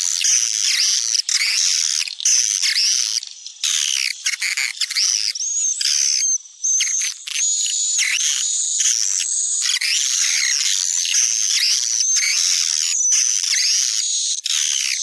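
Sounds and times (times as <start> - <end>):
swiftlet twittering calls: 0.0 - 15.0.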